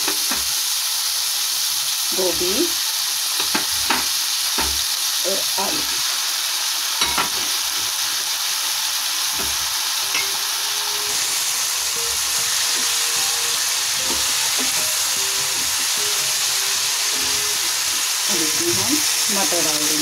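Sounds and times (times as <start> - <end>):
vegetables sizzling in oil: 0.0 - 20.0
spatula stirring in a pan: 11.0 - 20.0.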